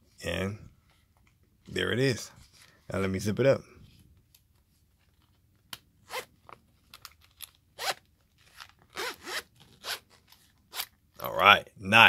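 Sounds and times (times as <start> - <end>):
zipper rasping closed: 6.1 - 6.3, 7.8 - 8.0, 8.6 - 10.9.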